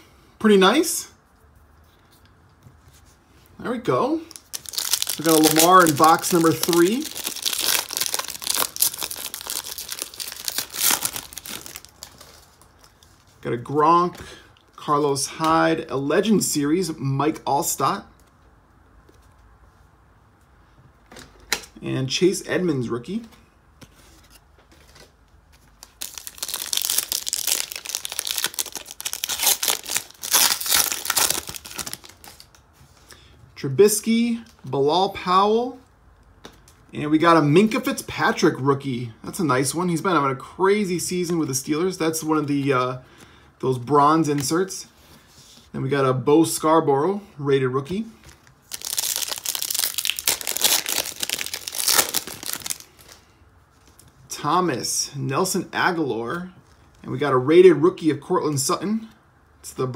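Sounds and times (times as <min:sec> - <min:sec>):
foil wrapper crinkling and tearing: 0:04.3 - 0:13.0, 0:25.8 - 0:32.6, 0:48.4 - 0:53.2.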